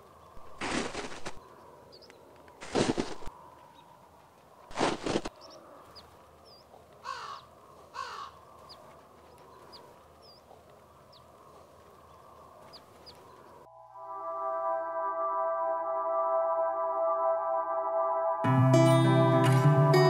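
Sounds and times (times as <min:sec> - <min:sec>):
small birds chirping: 0:00.0 - 0:13.7
boot crunching in snow: 0:00.4 - 0:01.4, 0:02.6 - 0:03.3, 0:04.7 - 0:05.4
bird caws: 0:07.0 - 0:10.4.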